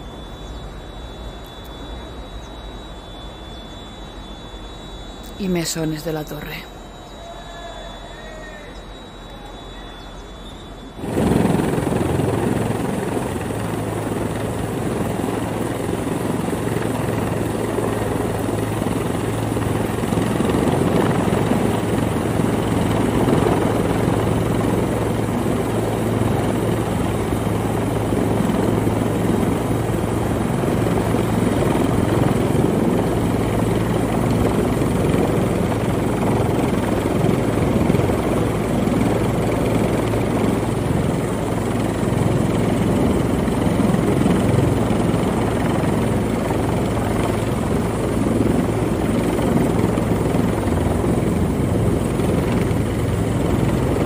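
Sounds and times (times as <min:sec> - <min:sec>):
helicopter rotor and engine: 0:00.0 - 0:54.0.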